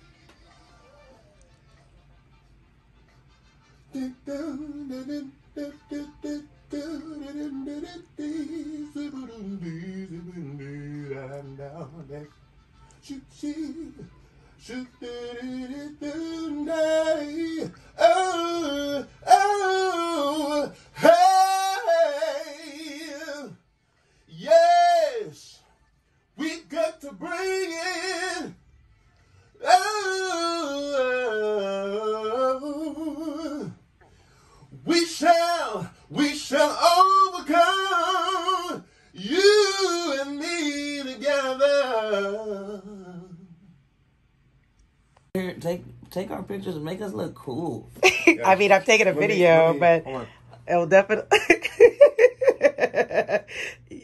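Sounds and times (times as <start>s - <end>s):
person singing with vibrato: 3.9s - 23.6s, 34.7s - 43.7s.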